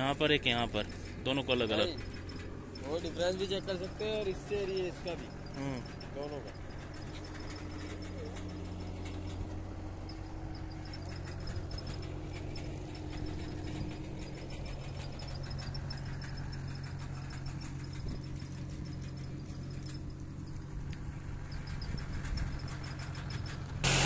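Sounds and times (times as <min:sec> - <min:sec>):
faint rapid high ticking: 0:00.0 - 0:23.9
engine humming: 0:00.0 - 0:24.0.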